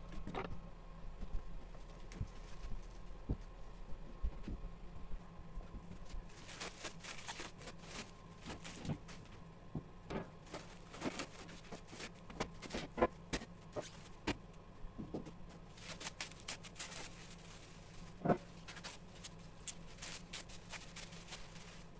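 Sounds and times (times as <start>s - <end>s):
plastic wrap crinkling and tearing: 6.2s - 9.2s, 15.7s - 21.9s.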